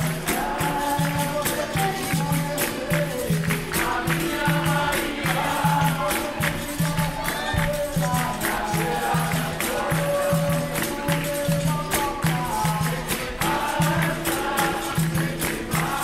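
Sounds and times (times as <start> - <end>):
berimbau and percussion beat: 0.0 - 16.0
group singing: 0.0 - 16.0.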